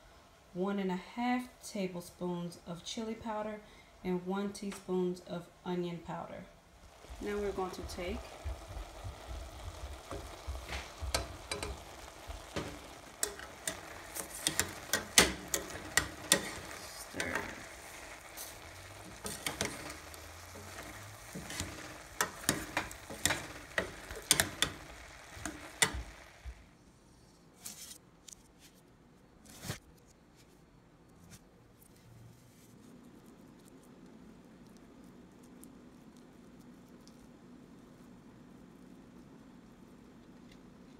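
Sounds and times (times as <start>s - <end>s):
vegetables sizzling in a pot: 1.4s - 26.8s
tongs clicking and scraping pot: 9.4s - 26.6s.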